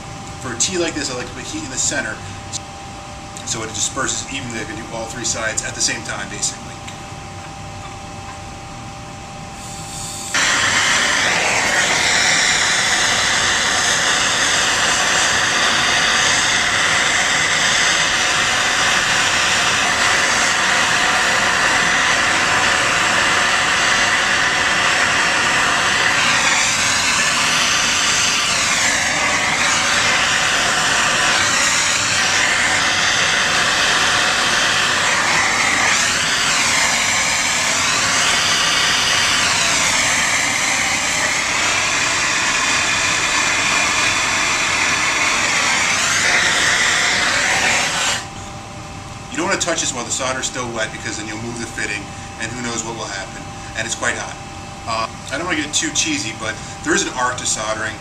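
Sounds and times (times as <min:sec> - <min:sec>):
gas torch flame hissing: 0:09.5 - 0:48.4.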